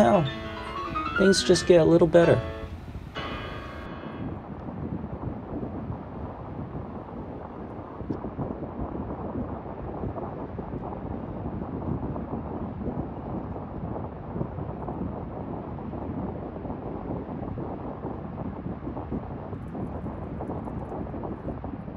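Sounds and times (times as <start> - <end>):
wind blowing on microphone: 1.7 - 21.9.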